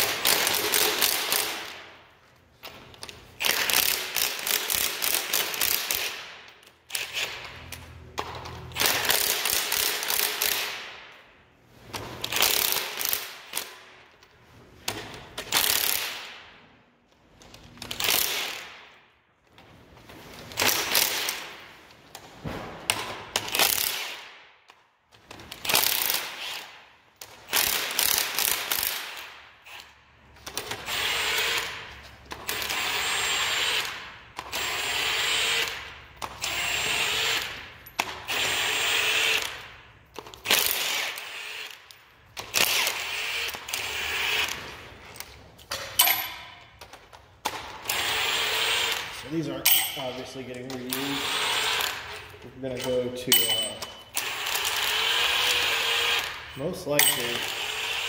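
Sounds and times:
ratchet wrench ratcheting: 0.0s - 1.8s, 2.7s - 10.9s, 12.2s - 13.8s, 14.9s - 16.3s, 17.4s - 18.8s, 25.2s - 50.0s, 50.6s - 58.0s.

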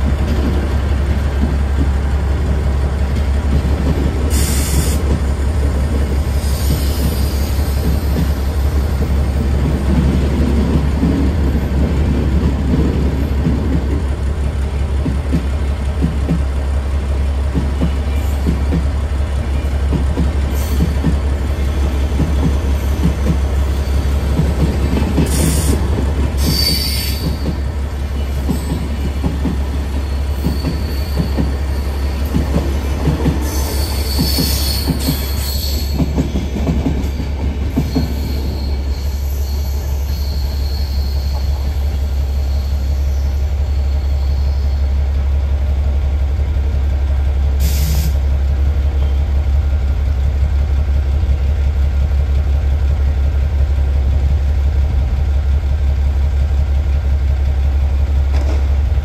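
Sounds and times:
train wheels clattering over joints: 22.0s - 38.6s
high wheel squeal: 26.4s - 29.2s, 29.9s - 36.6s, 37.8s - 44.9s.

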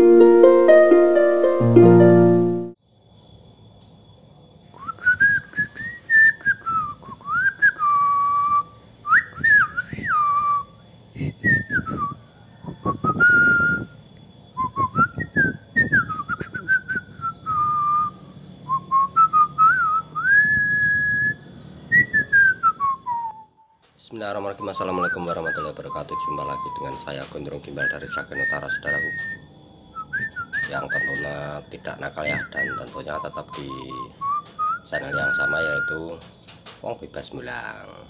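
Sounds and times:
person whistling a slow tune: 4.8s - 14.0s, 14.6s - 23.8s, 24.6s - 36.2s
clicks and handling noise: 30.2s - 31.3s, 36.2s - 36.9s.

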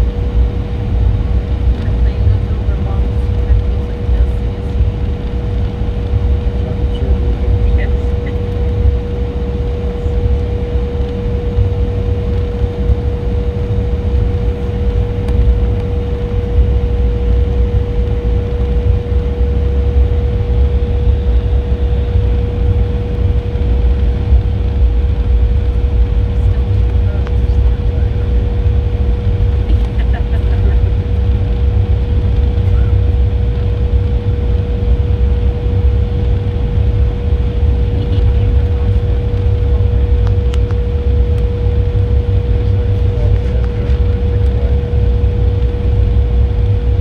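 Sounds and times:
jet engines rumbling: 0.0s - 47.0s.

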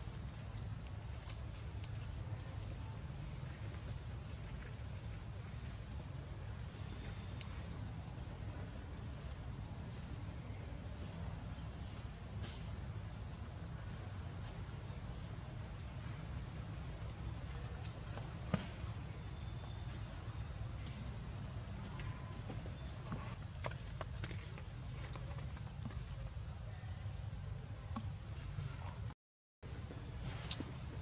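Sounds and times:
insects chirring: 0.0s - 31.0s.

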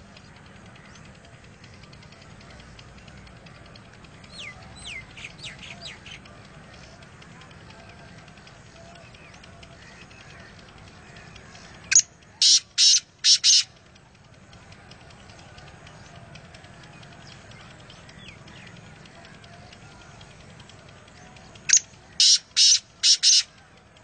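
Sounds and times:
faint background chirping: 0.0s - 24.0s
low steady rumble: 0.0s - 24.0s
francolin call: 11.6s - 13.8s, 21.7s - 23.6s.

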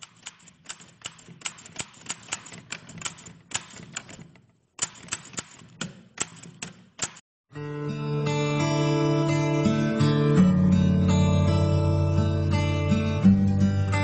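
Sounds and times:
typewriter keys clacking: 0.0s - 7.2s.

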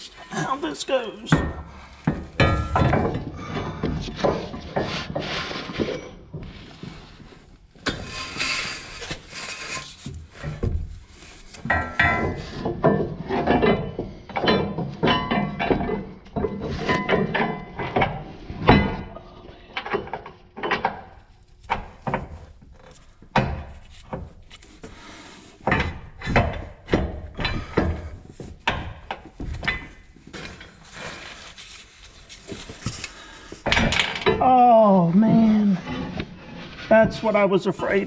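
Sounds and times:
man groaning: 34.4s - 35.9s.

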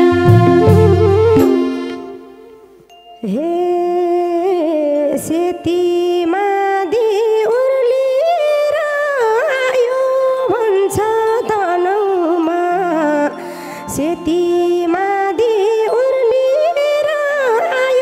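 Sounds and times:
folk music melody: 0.0s - 2.9s, 9.4s - 18.0s.

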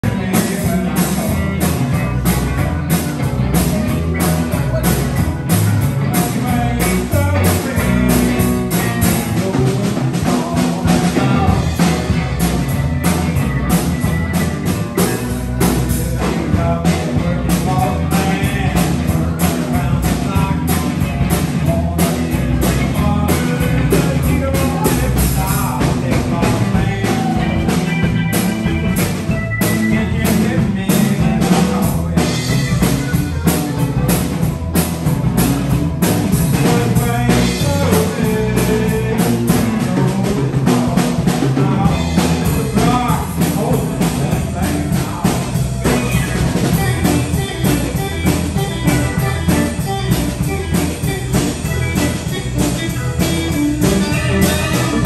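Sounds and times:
live blues-rock band playing: 0.0s - 55.0s
steady drum beat: 0.0s - 55.0s.

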